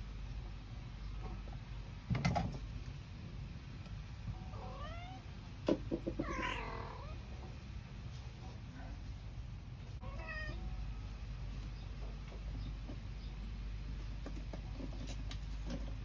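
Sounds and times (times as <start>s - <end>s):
kitten meowing: 4.5s - 5.2s, 6.2s - 7.2s.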